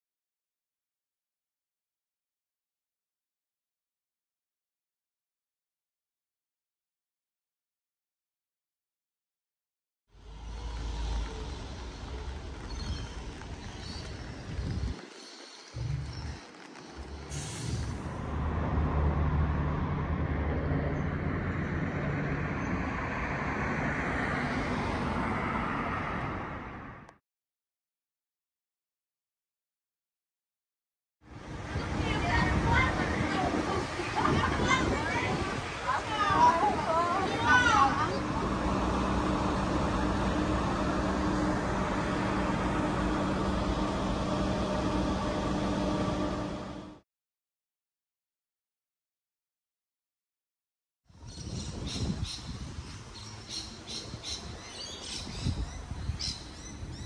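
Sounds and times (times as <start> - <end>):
low drone of large engine: 10.1 - 15.0, 15.7 - 27.2, 31.2 - 47.0
low mechanical hum of traffic: 10.1 - 27.1, 31.3 - 47.0, 51.1 - 57.0
passing vehicles: 10.1 - 27.2, 31.3 - 47.0.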